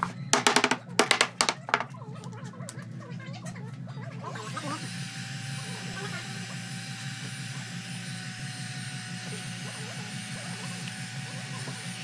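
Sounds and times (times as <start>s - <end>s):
heat gun running: 4.2s - 12.0s.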